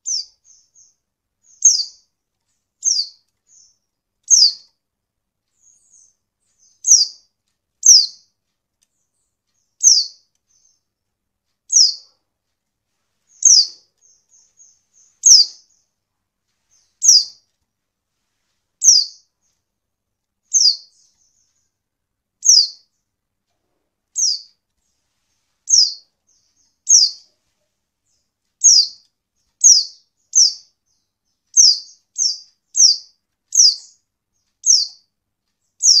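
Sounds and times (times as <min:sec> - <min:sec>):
faint bird twitters: 0:00.0 - 0:02.1, 0:02.8 - 0:04.8, 0:05.6 - 0:08.3, 0:08.9 - 0:10.9, 0:11.7 - 0:12.2, 0:13.3 - 0:16.0, 0:16.7 - 0:17.4, 0:20.4 - 0:21.8, 0:22.4 - 0:23.0, 0:25.7 - 0:36.0
bird chirping: 0:00.0 - 0:12.3, 0:12.9 - 0:19.8, 0:20.4 - 0:36.0.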